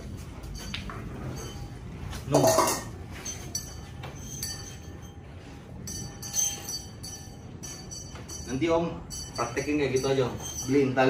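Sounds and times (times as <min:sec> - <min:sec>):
thin metallic ringing: 0:00.0 - 0:11.0
metal bowl clattering on tiles: 0:02.3 - 0:02.9.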